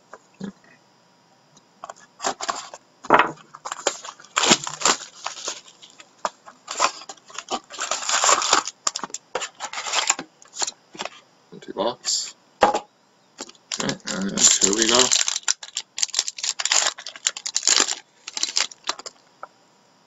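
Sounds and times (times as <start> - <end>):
foil packs rustling: 1.9 - 11.2, 13.4 - 19.2
plastic shrink wrap crinkling: 2.2 - 10.7, 13.4 - 19.2.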